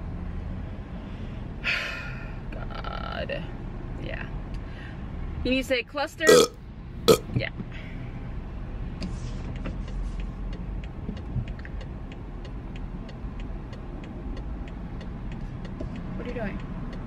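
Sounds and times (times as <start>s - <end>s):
road and engine rumble: 0.0s - 17.0s.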